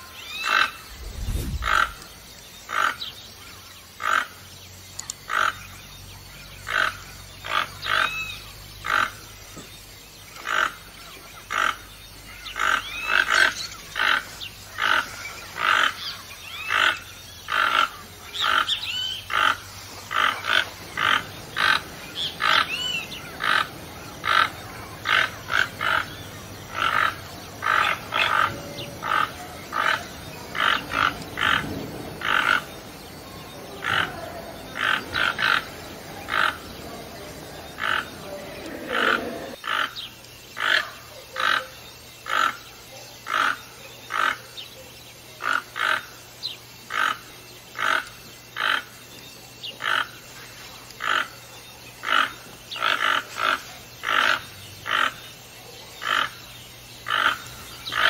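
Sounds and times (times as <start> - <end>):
toucan calling: 11.5 - 32.8, 33.4 - 40.0.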